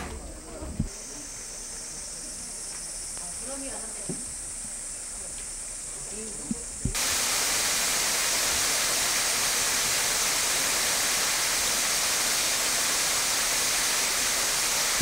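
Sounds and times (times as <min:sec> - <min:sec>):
small waterfall rushing: 0:06.9 - 0:15.0.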